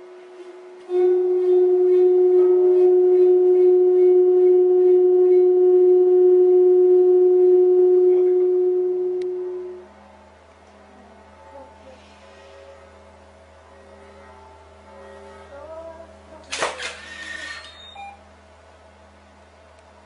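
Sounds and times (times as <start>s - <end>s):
loud steady tone: 0.0s - 10.4s.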